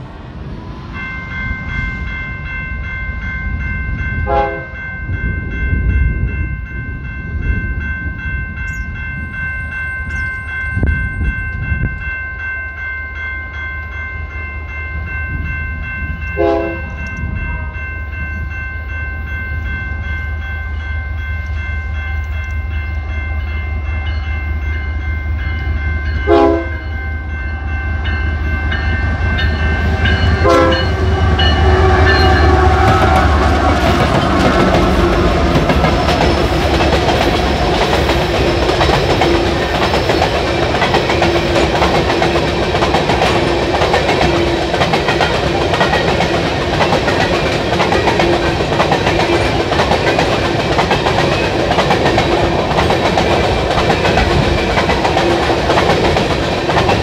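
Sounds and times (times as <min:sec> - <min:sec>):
crossing bell ringing: 0:00.0 - 0:57.0
locomotive engine rumble: 0:27.3 - 0:50.3.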